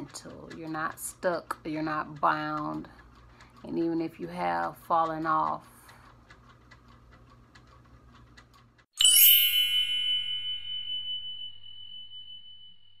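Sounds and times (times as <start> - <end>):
faint ticking: 0.0 - 8.9
bell ding: 9.0 - 13.0.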